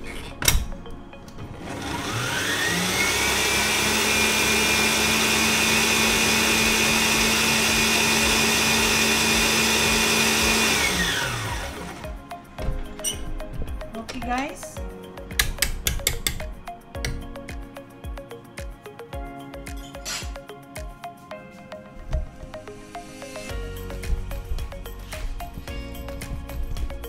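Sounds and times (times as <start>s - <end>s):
electric mixer whining: 1.5s - 12.2s.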